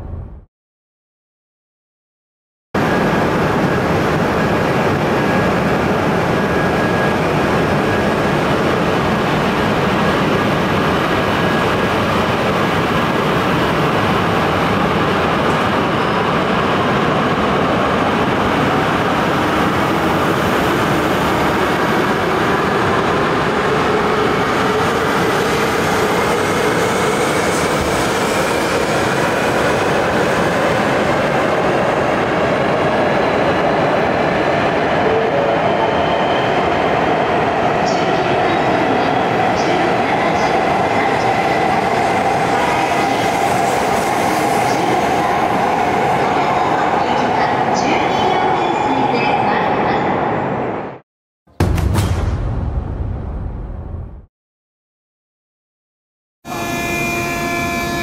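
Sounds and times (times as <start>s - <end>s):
train whine rising in pitch: 56.5s - 58.0s.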